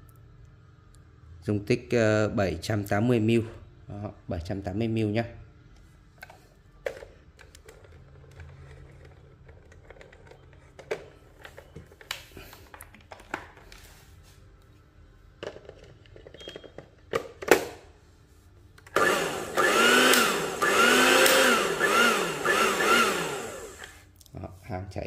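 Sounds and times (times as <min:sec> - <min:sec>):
blender motor running: 0:19.0 - 0:24.0.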